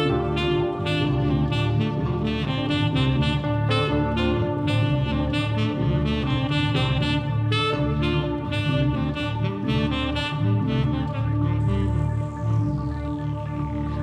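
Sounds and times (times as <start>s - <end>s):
upbeat background music: 0.0s - 14.0s.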